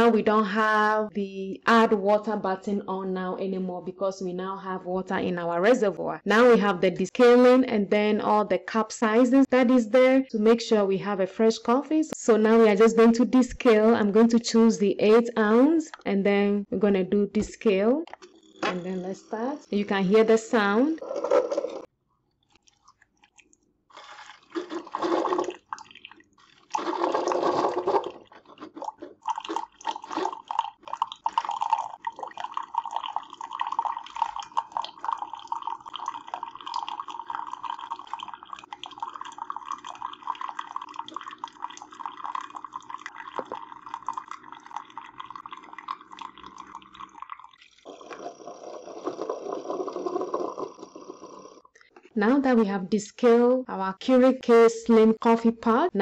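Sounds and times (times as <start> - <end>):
coffee maker bursts of noise: 18.2 - 21.9
hot water pouring into a mug: 24.6 - 51.0.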